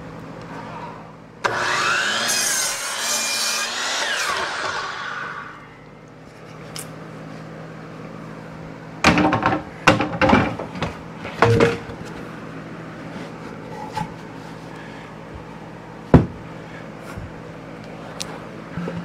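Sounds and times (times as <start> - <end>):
steady low hum: 0.0 - 1.5, 5.1 - 19.0
wooden boards clattering: 9.1 - 12.1.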